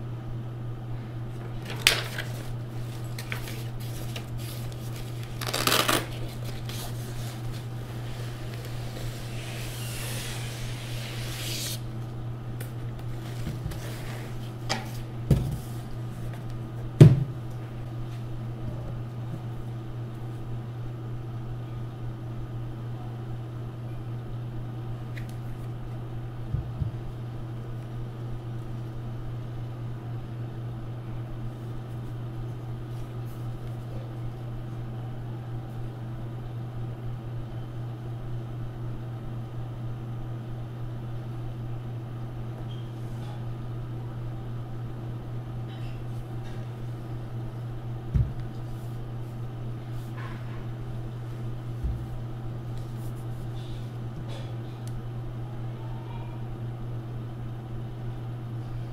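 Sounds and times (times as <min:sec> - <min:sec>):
steady low hum: 0:00.0 - 0:58.9
laptop and packaging handled: 0:01.6 - 0:09.9.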